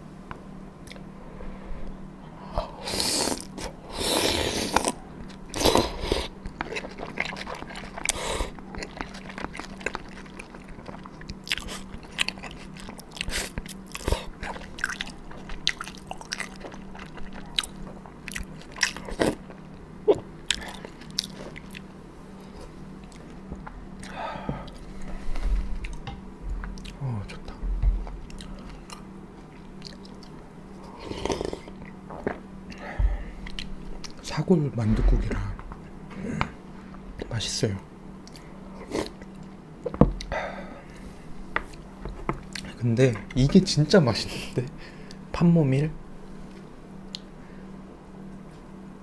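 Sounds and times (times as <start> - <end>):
wet chewing and mouth clicks: 6.4 - 24.1, 28.0 - 30.4.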